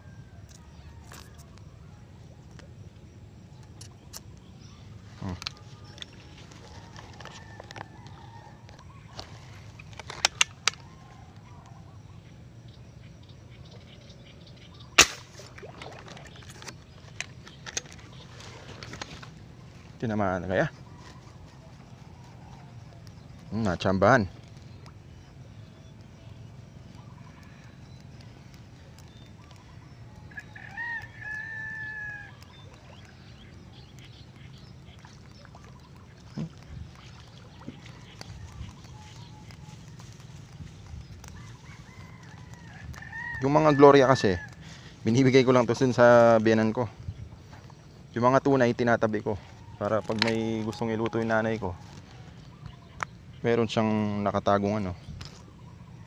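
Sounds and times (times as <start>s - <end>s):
sharp loud gunshot: 15.0s - 15.4s
rooster crowing: 30.3s - 32.5s, 41.3s - 44.7s.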